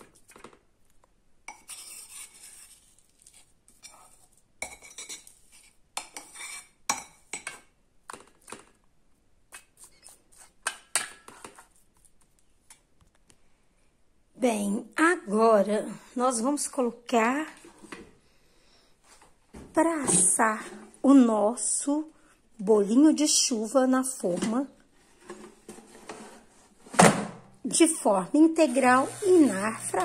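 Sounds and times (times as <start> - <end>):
metal spoon scraping and clinking pan: 1.5 - 2.8, 3.8 - 7.6.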